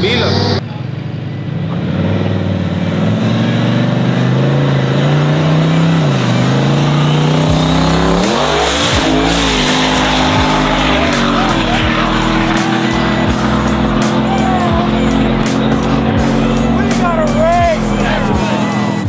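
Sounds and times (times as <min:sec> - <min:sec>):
truck engine at full throttle: 0:00.0 - 0:19.0.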